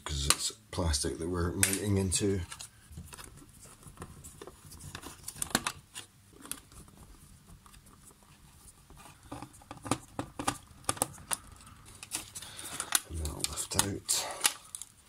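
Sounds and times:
hands clicking and tapping electronics: 9.2 - 15.0.

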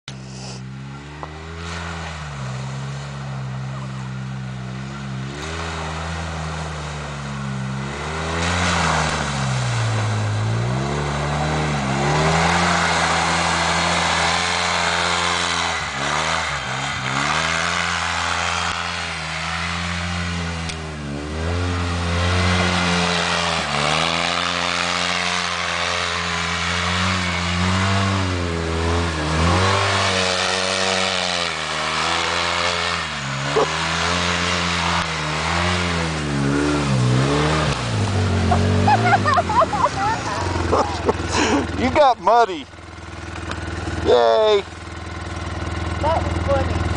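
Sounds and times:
off-road vehicle engine revving: 0.0 - 46.9.

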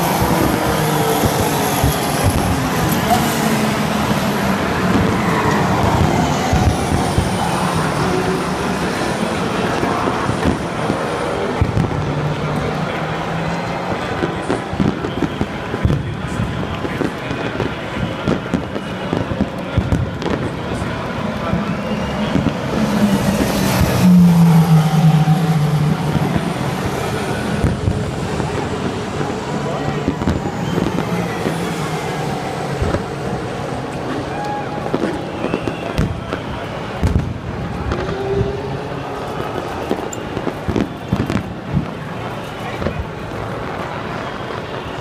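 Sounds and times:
racing cars rumbling past: 0.0 - 44.9
crowd din: 0.0 - 45.0
fireworks thumps: 14.1 - 22.6, 34.8 - 38.6.

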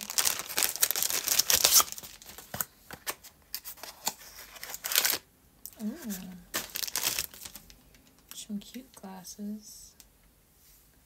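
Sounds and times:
plastic packaging crinkling: 0.0 - 5.2, 5.8 - 8.2
person humming: 5.7 - 6.5.

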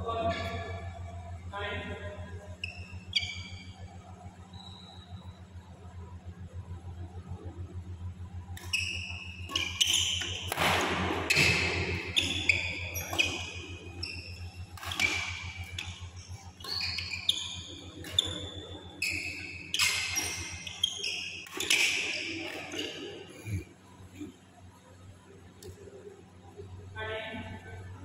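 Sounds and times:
steady low hum: 0.0 - 28.0
shoes squeaking on court: 2.5 - 5.2, 8.5 - 23.2
racket striking shuttlecock: 8.5 - 13.8, 14.7 - 17.1.

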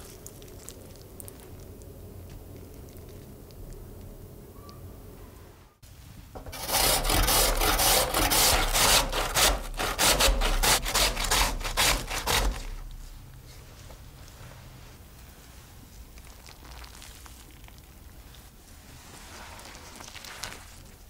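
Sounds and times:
potato grating on grater: 6.4 - 13.0.

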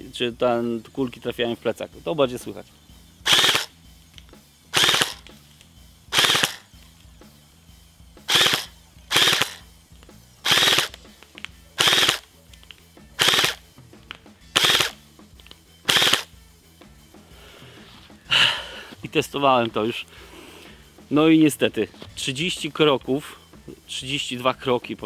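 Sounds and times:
airsoft rifle full-auto bursts: 3.2 - 3.7, 4.7 - 5.3, 6.1 - 6.7, 8.3 - 9.6, 10.4 - 11.0, 11.8 - 12.2, 13.2 - 13.6, 14.5 - 15.0, 15.9 - 16.3.

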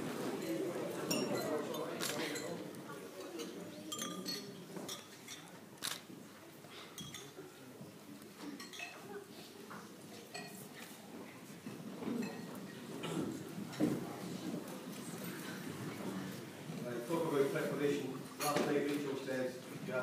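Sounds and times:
murmur of voices: 0.0 - 20.0
glasses and cutlery clinking: 0.4 - 5.6, 6.7 - 7.6, 8.4 - 9.3, 10.1 - 10.8, 12.0 - 14.0, 18.4 - 18.7.

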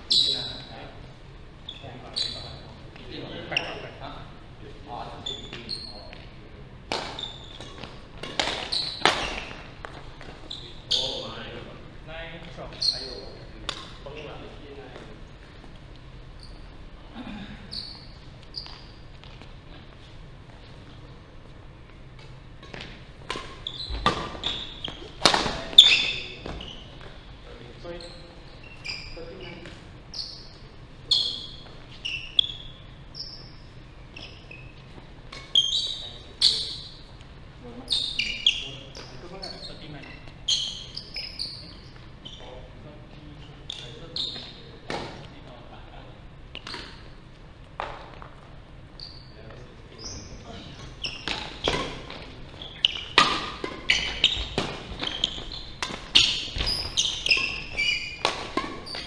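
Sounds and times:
shoes squeaking on wooden floor: 0.0 - 0.8, 1.6 - 4.0, 5.0 - 6.3, 7.0 - 11.6, 17.7 - 21.1, 21.8 - 42.8, 43.6 - 45.3, 47.8 - 59.0
racket striking shuttlecock: 52.9 - 56.8, 57.4 - 59.0.

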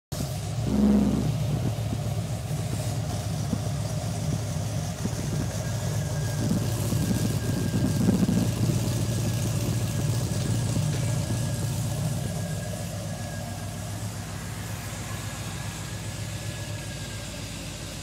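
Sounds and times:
car engine idling: 0.1 - 18.0.

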